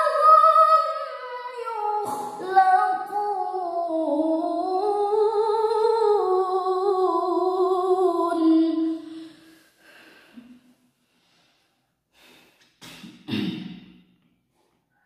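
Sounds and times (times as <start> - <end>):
soft breaths: 9.1 - 12.7.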